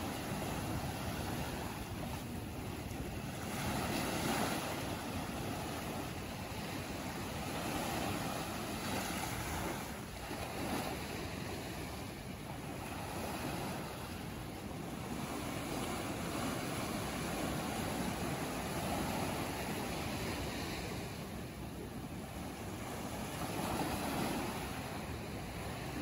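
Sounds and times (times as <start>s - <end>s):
sea surf washing between rocks: 0.0s - 26.0s.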